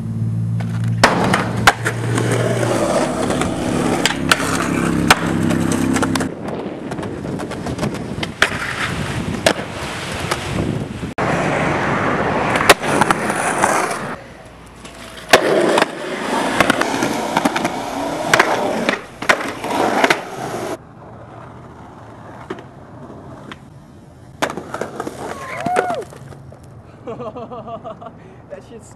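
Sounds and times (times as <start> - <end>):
skateboard wheels rolling on concrete: 0.0 - 28.1
skateboard clacks and landings: 0.6 - 10.6, 14.8 - 23.7, 24.3 - 26.7.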